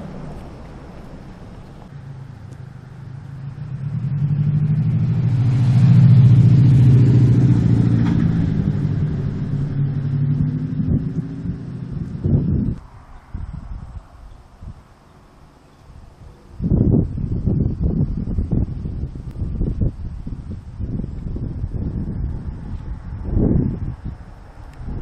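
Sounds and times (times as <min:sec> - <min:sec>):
car driving past: 0:00.0 - 0:13.9.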